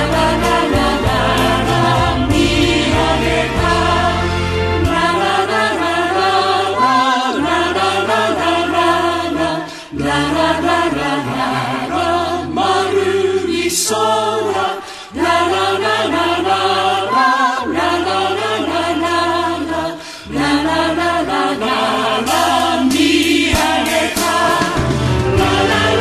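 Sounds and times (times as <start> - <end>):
piano bass and drums band: 0.0 - 5.5, 22.3 - 26.0
choral singing: 0.0 - 26.0.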